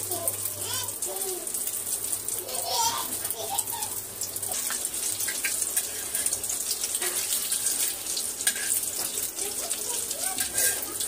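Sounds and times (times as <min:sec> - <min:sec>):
kababs sizzling in hot oil: 0:00.0 - 0:11.0
metal spatula scraping on pan: 0:04.5 - 0:09.2, 0:10.4 - 0:11.0.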